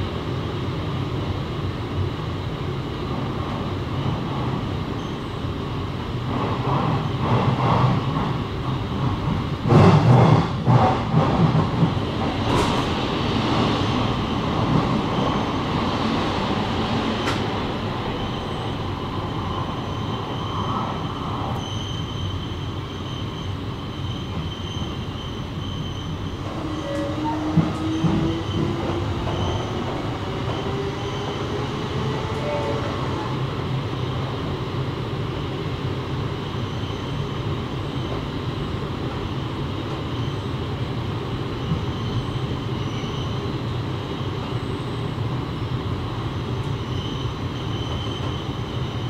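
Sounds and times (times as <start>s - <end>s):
train rumble: 0.0s - 49.0s
faint high squeal: 4.9s - 5.4s, 18.0s - 33.4s, 36.4s - 38.1s, 40.1s - 40.6s, 41.6s - 45.2s, 46.7s - 49.0s
train wheels clattering on rails: 6.2s - 18.7s, 24.0s - 33.4s.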